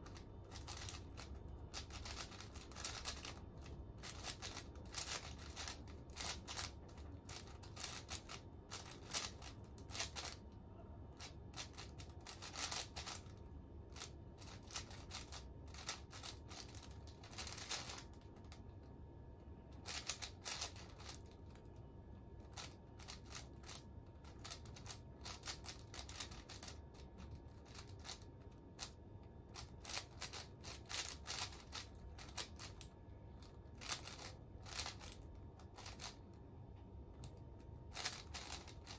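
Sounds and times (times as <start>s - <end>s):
puzzle cube clicking: 0.0s - 10.4s, 11.2s - 13.4s, 14.0s - 18.1s, 19.8s - 21.2s, 29.6s - 32.8s.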